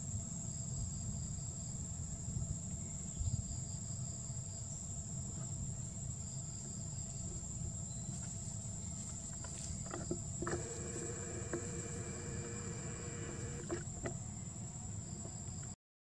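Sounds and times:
clicks: 9.9 - 14.2.

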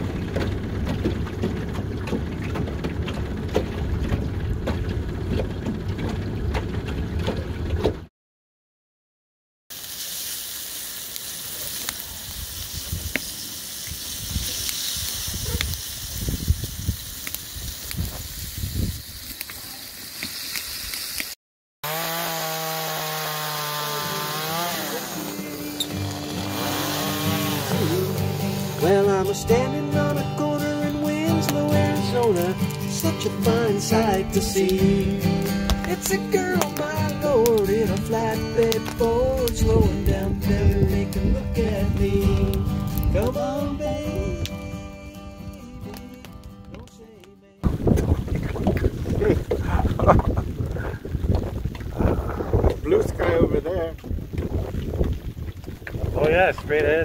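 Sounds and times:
outboard motor running: 0.0 - 8.1, 21.8 - 39.3
campfire crackling: 9.7 - 21.4, 22.4 - 57.0
fish sizzling in a frying pan: 9.7 - 21.4
chainsaw cutting wood: 21.2 - 40.3.

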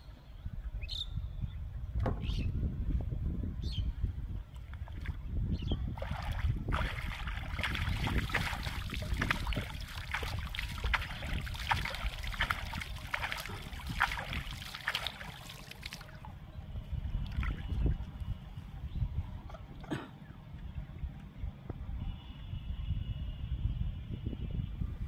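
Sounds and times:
low wind rumble on microphone: 0.0 - 25.0
muddy water splashing: 4.6 - 16.4, 17.1 - 18.3.

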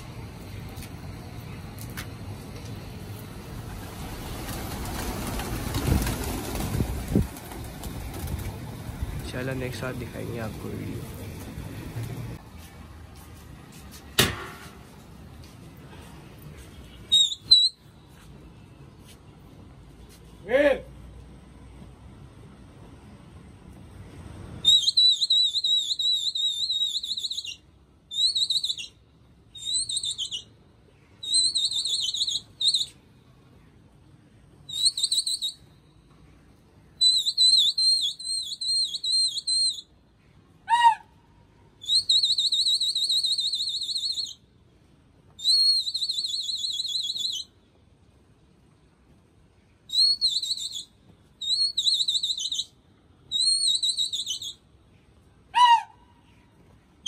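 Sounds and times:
shrill warbling whistle blasts: 17.1 - 17.8, 24.6 - 28.9, 37.0 - 39.9, 41.8 - 44.4, 45.4 - 47.5, 49.9 - 52.7, 53.3 - 54.6, 55.5 - 56.0.

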